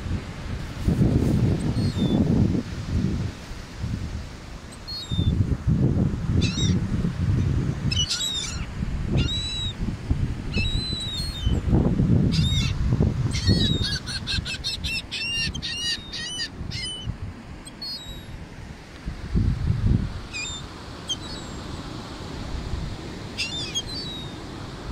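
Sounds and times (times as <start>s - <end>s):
breaking surf: 0.0s - 4.7s
wind rumble on microphone: 0.0s - 24.9s
gulls calling: 7.9s - 9.8s, 12.3s - 18.3s, 20.3s - 21.6s, 23.3s - 24.5s.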